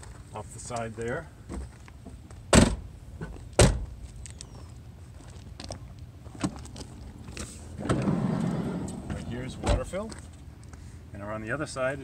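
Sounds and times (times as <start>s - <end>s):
van door thudding shut: 2.5s - 2.9s.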